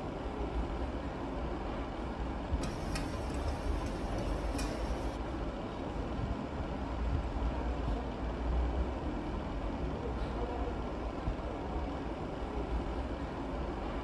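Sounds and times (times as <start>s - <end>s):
light sharp clicks: 2.6s - 5.2s.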